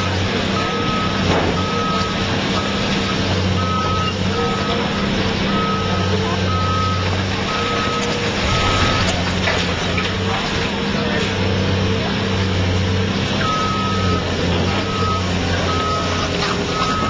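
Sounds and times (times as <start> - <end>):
excavator engine running: 0.0 - 17.0
backup alarm beeping: 0.6 - 2.2, 3.5 - 9.2, 13.4 - 17.0
building crunching and rattling: 7.0 - 12.4.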